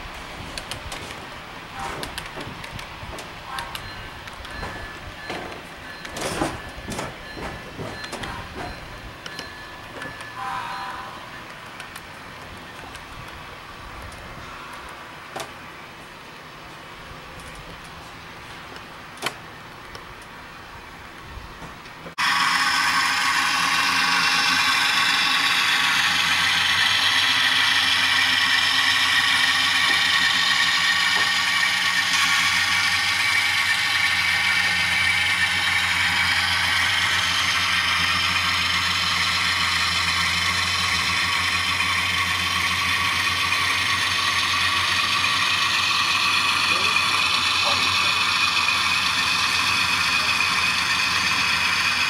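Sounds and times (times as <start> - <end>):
model locomotive motor whir: 22.2 - 52.0.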